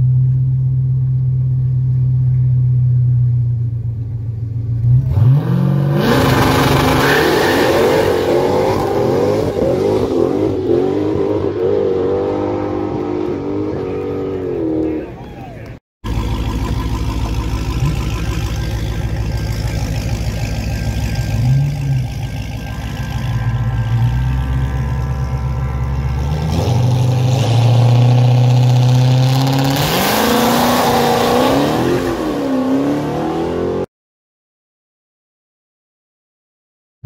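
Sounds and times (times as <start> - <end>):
car engine revving and accelerating: 4.8 - 15.1, 16.2 - 33.9.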